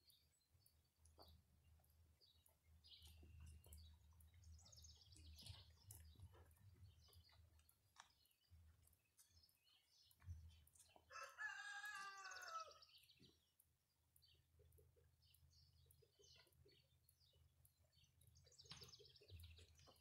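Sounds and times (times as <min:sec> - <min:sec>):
rooster crowing: 0:11.1 - 0:12.8.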